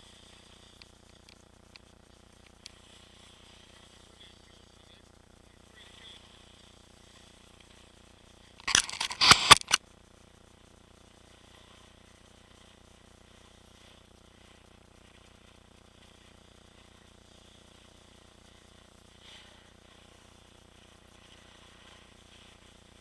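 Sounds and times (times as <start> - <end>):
faint steady hiss: 0.0 - 23.0.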